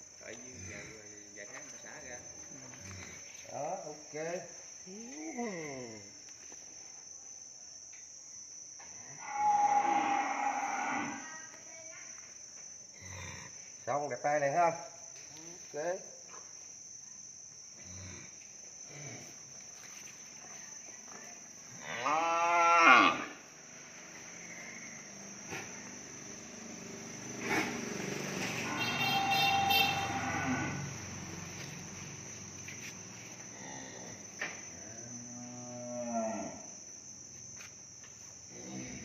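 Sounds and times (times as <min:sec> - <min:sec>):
insect drone: 0:00.0 - 0:39.0
cow mooing: 0:28.6 - 0:30.9.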